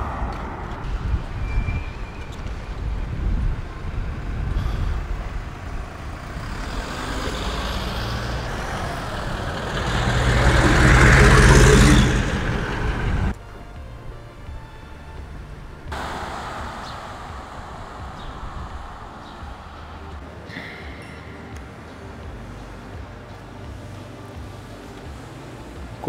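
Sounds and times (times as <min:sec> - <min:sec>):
wind rumbling on microphone: 0:00.0 - 0:20.5
road traffic: 0:00.0 - 0:26.0
vehicle engine passing: 0:02.8 - 0:13.4, 0:15.9 - 0:26.0.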